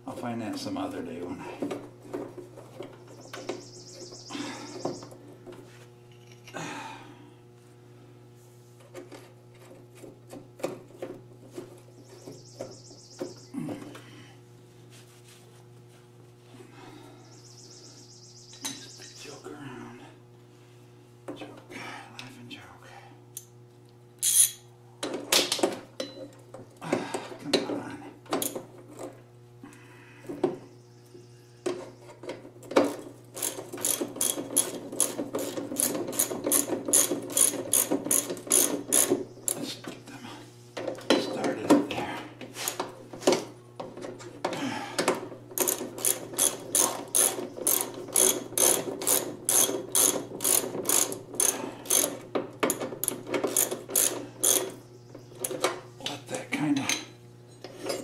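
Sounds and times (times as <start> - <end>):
socket ratchet clicking: 24.2 - 24.6, 45.6 - 54.7.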